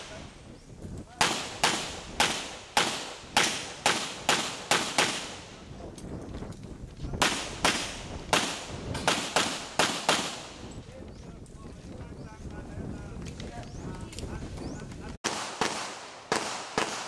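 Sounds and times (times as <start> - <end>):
handgun shots: 1.2 - 5.4, 15.2 - 17.0.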